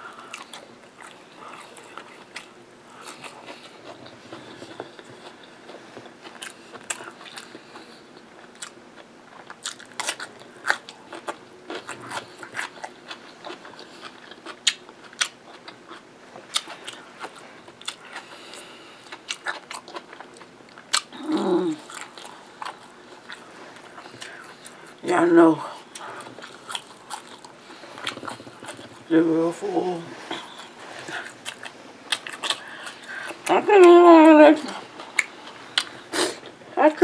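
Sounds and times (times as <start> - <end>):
wet chewing: 0.2 - 25.0, 25.8 - 29.1, 30.3 - 34.0, 34.6 - 36.6
woman humming: 21.1 - 21.9.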